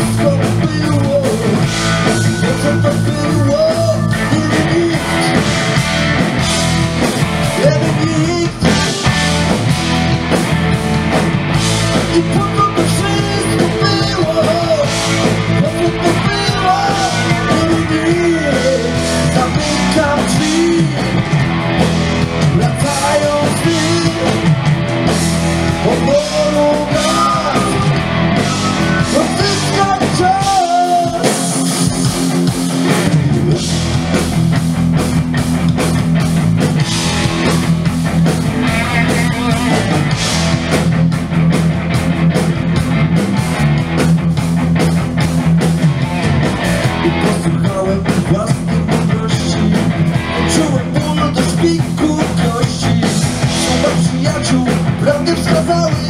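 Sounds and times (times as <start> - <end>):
person singing: 0.0 - 5.7, 7.5 - 9.6, 12.0 - 21.3, 22.4 - 24.6, 25.7 - 32.1, 46.8 - 56.0
live blues-rock band: 0.0 - 56.0.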